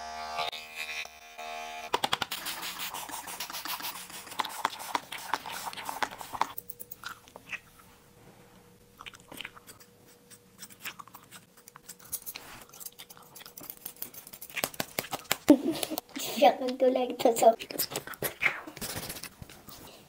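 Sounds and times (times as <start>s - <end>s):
scissors snipping hair: 9.4s - 16.0s.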